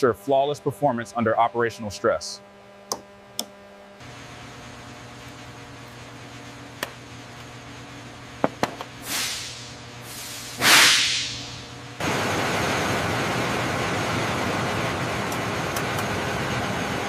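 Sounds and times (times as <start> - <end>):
steady low hum: 0.0 - 17.0
bursts of hiss: 9.0 - 11.6.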